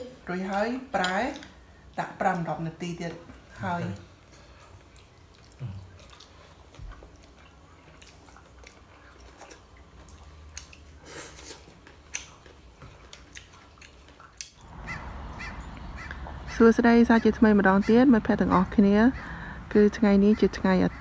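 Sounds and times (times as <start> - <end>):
biting and chewing food: 4.4 - 16.5.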